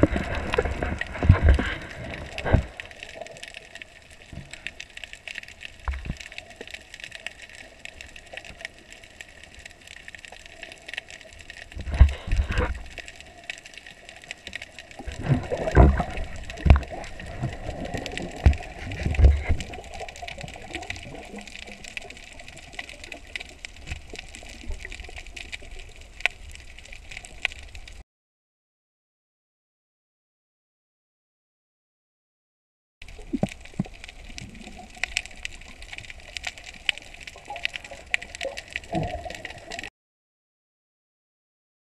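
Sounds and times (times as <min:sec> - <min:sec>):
water rushing against camera housing: 0:00.0 - 0:03.7, 0:11.6 - 0:13.1, 0:15.0 - 0:25.9
faint crackle of fine clicks: 0:00.0 - 0:28.0, 0:33.0 - 0:39.9.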